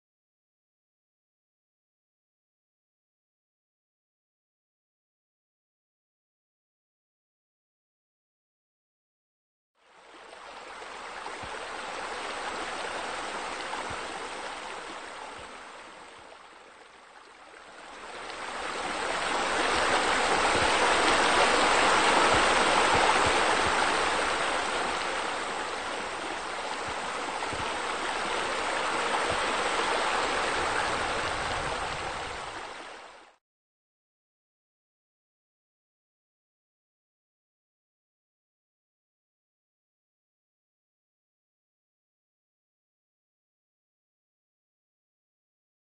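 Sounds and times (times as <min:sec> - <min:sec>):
running water rushing: 0:09.9 - 0:33.4.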